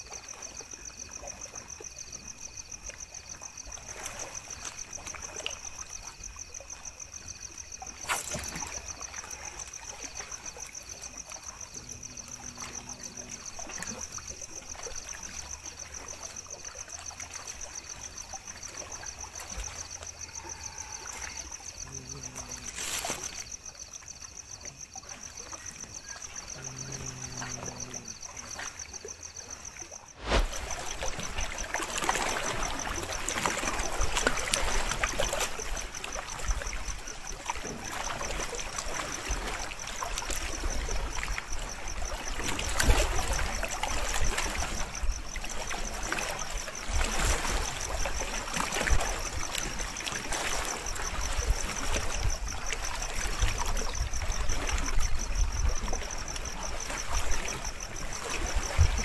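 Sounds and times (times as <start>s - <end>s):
lake water lapping at shore: 0.0s - 59.0s.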